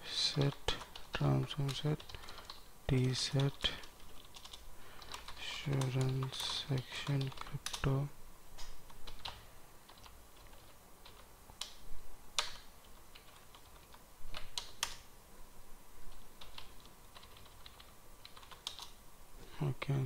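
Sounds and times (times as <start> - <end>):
typing on computer keyboard: 0.3 - 7.9, 8.9 - 11.8, 16.4 - 19.0.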